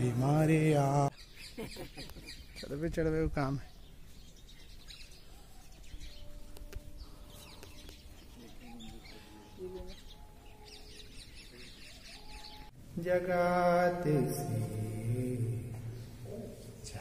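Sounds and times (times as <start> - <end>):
small birds chirping: 0.4 - 12.8.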